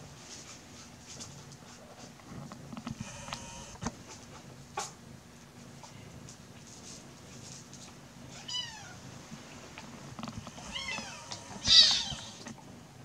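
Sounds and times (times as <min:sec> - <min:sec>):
kitten mewing: 0:10.5 - 0:12.5
kitten shrieking: 0:10.6 - 0:12.5.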